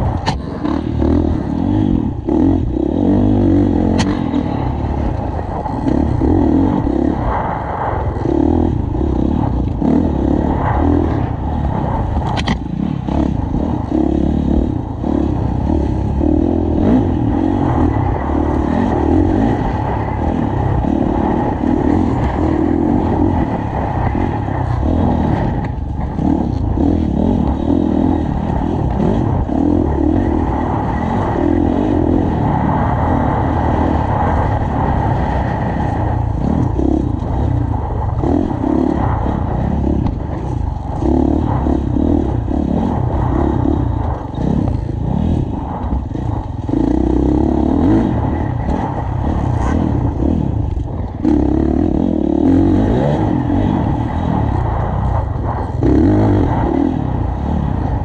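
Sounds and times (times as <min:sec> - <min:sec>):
dirt bike engine revving: 0:00.0 - 0:58.0
sharp tick: 0:03.9 - 0:04.3, 0:12.2 - 0:12.6.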